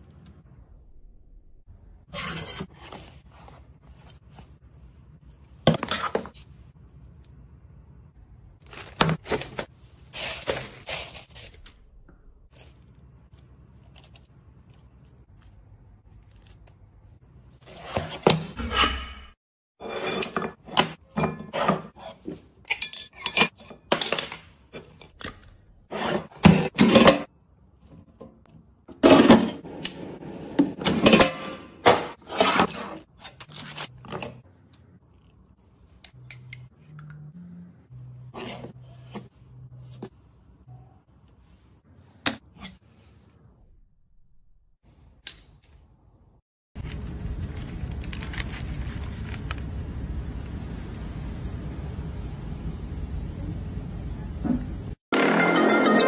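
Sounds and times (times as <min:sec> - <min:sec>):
knife and spoon scraping bowl: 0:02.1 - 0:03.2, 0:17.6 - 0:23.8.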